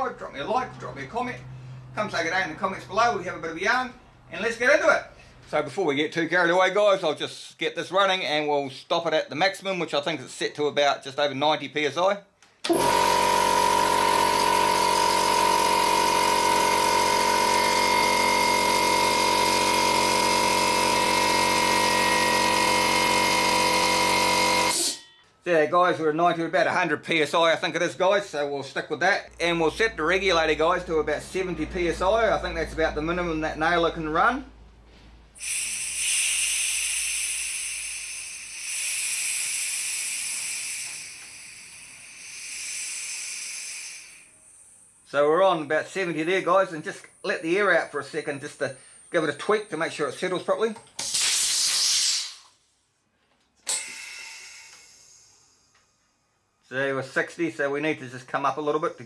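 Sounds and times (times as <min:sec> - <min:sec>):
air compressor running: 0:12.6 - 0:25.0, 0:34.9 - 0:52.5, 0:53.7 - 0:56.1
compressed air hissing: 0:35.4 - 0:45.1, 0:51.0 - 0:52.6, 0:53.7 - 0:55.7.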